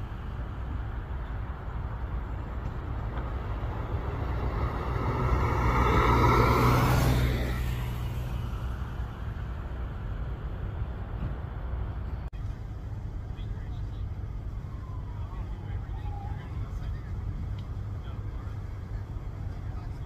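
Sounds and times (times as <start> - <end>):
car driving past: 3.1 - 9.2.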